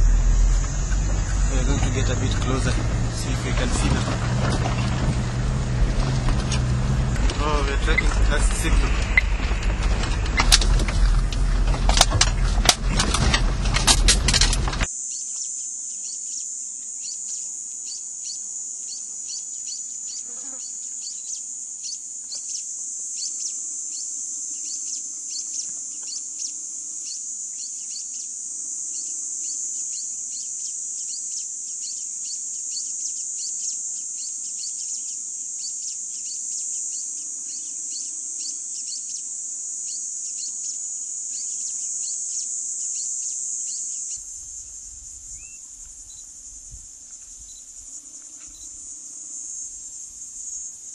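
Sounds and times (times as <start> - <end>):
low rumble: 0.0 - 14.9
insects droning: 0.0 - 50.9
short insect chirps: 14.8 - 50.9.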